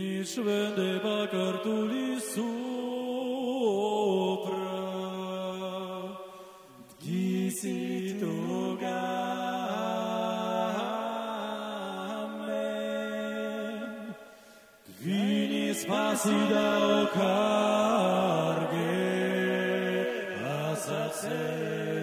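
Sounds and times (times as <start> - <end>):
a cappella vocal ensemble singing: 0.0 - 22.0.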